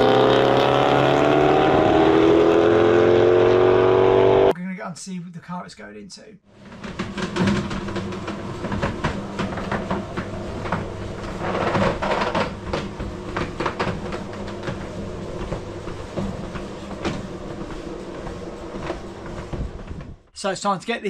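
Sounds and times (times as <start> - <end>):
steady hum: 6.6 - 20.6.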